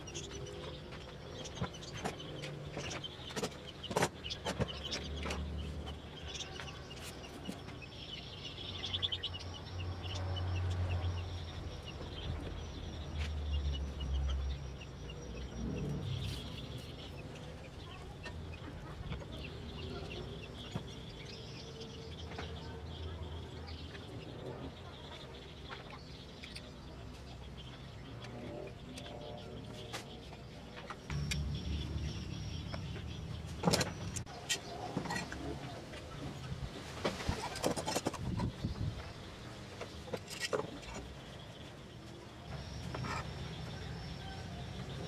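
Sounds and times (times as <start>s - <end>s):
birds chirping: 0.0s - 45.0s
low rumble: 31.1s - 34.2s.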